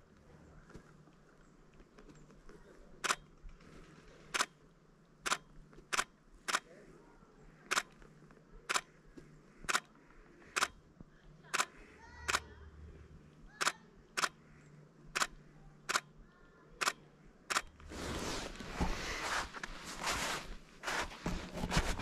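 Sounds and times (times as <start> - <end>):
footsteps crunching in snow: 17.8 - 22.0.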